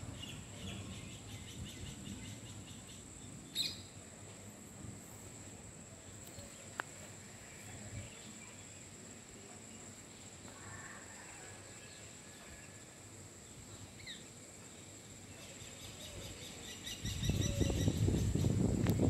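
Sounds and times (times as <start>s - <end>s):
faint bird chirps: 0.1s - 4.0s.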